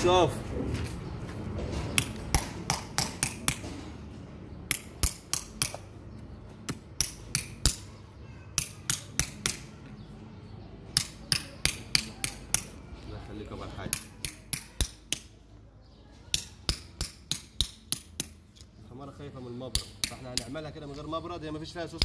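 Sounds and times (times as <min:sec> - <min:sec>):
hammer tapping hoof-trimming blade: 0:06.7 - 0:07.9, 0:08.6 - 0:09.7, 0:11.0 - 0:12.8, 0:13.8 - 0:15.4, 0:16.3 - 0:18.7, 0:19.7 - 0:20.6.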